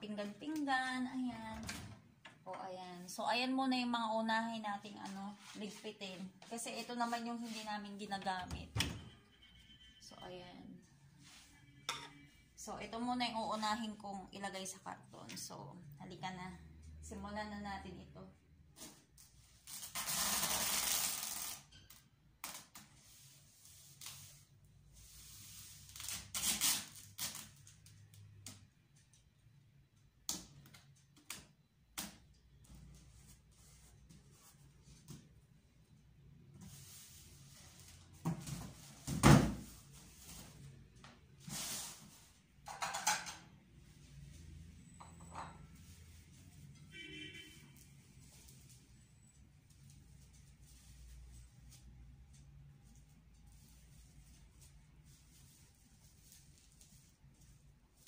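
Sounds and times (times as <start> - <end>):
packing tape tearing screech: 19.6 - 21.7, 25.9 - 27.6
short tape rips: 25.9 - 27.8.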